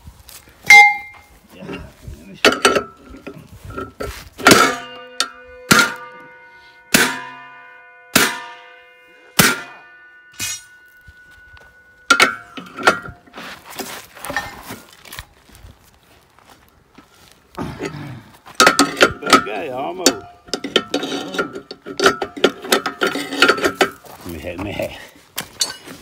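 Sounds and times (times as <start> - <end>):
steel disc blades ringing: 0.6 - 1.3, 4.4 - 13.6, 18.6 - 24.1
metal hammer blows on bolt: 4.4 - 11.1.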